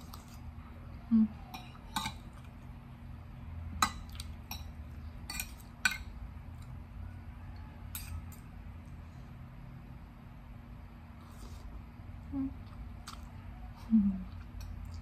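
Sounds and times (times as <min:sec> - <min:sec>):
fork and spoon clinking on plate: 0:07.9 - 0:08.5.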